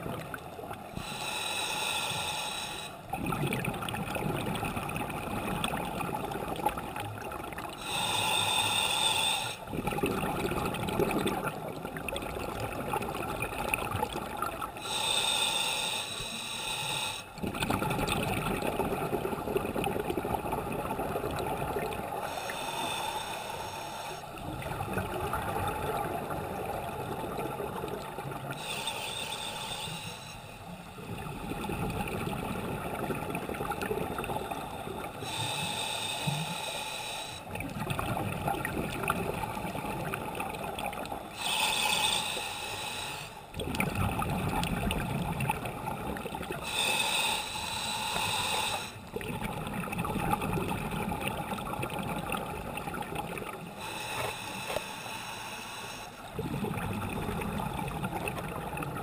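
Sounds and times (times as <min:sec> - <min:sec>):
regulator hissing inhalations: 0:01.0 - 0:03.0, 0:07.8 - 0:09.7, 0:14.8 - 0:17.4, 0:22.2 - 0:24.3, 0:28.6 - 0:30.8, 0:35.1 - 0:37.5, 0:41.3 - 0:43.5, 0:46.6 - 0:49.0, 0:53.7 - 0:56.3
gurgling rush of exhaled bubbles: 0:03.1 - 0:07.8, 0:09.7 - 0:14.8, 0:17.4 - 0:22.2, 0:24.4 - 0:28.6, 0:31.0 - 0:35.3, 0:37.5 - 0:41.2, 0:43.5 - 0:46.7, 0:49.0 - 0:53.7, 0:56.3 - 0:59.0.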